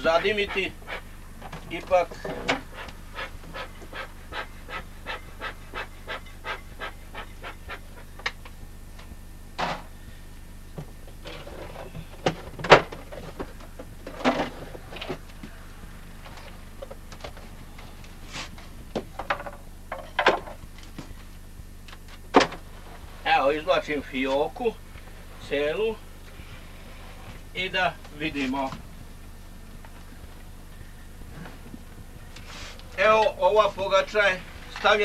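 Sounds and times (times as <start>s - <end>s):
bee smoker bellows puffing: 0.0s - 8.4s.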